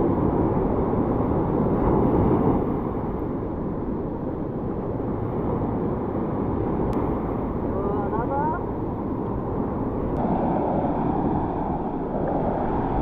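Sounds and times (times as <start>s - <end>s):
wind rumbling on microphone: 0.0s - 13.0s
surf breaking on beach: 9.4s - 13.0s.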